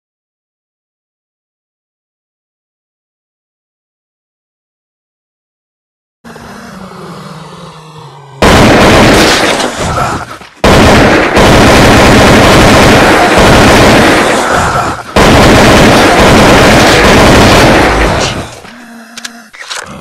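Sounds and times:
loud distorted gunfire: 0:08.4 - 0:18.6.

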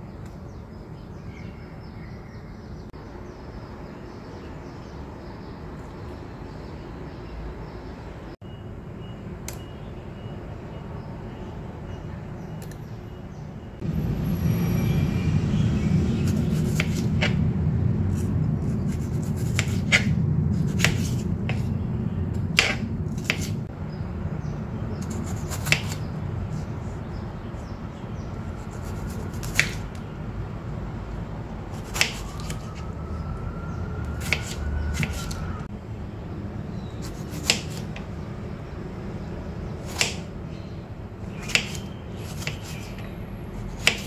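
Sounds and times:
steady low hum: 0:13.8 - 0:32.3.

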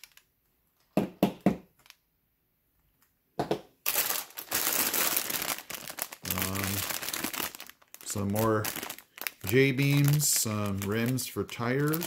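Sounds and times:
plastic bag crinkling: 0:00.0 - 0:00.3, 0:01.7 - 0:02.0, 0:03.8 - 0:12.0.

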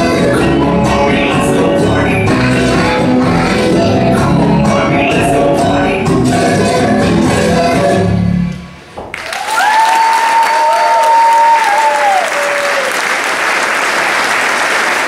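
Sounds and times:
dance music: 0:00.0 - 0:08.5
audience applause: 0:09.1 - 0:15.0
high held cheers: 0:09.2 - 0:13.3.

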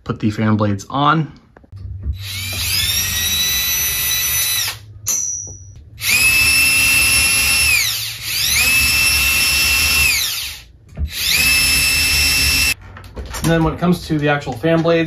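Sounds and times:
cordless drill motor whining: 0:02.2 - 0:04.8, 0:06.0 - 0:12.8.

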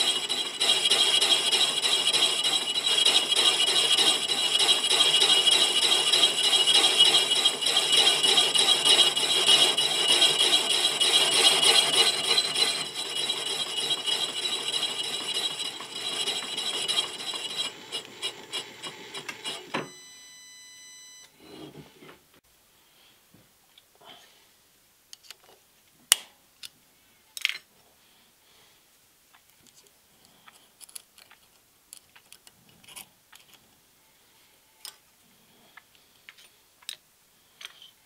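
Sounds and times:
metallic ring: 0:00.0 - 0:17.8
spindle ticking: 0:00.0 - 0:19.5
boring bar cutting metal: 0:00.0 - 0:19.7.

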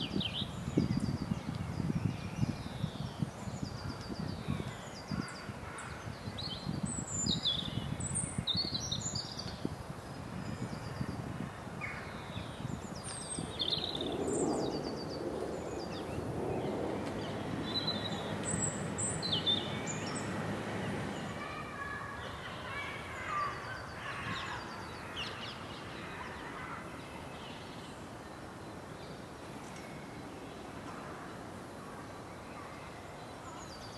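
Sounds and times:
birds chirping: 0:10.5 - 0:33.9
outdoor background rumble: 0:15.6 - 0:22.5.

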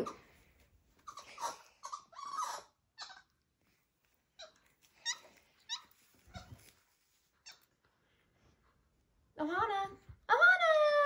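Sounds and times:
monkey chirping and squeaking: 0:01.1 - 0:03.3, 0:04.4 - 0:06.6.

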